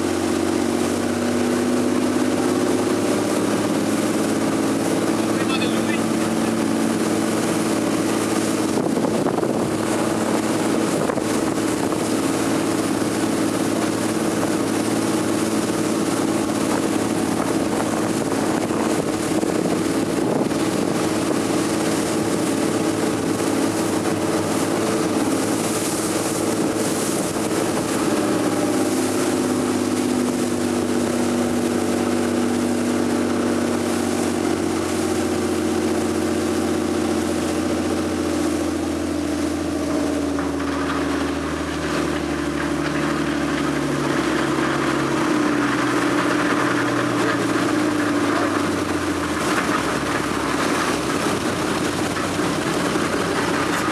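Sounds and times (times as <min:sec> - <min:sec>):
boat motor running: 0:00.0 - 0:53.9
wind on the microphone: 0:08.6 - 0:12.2, 0:16.8 - 0:21.5.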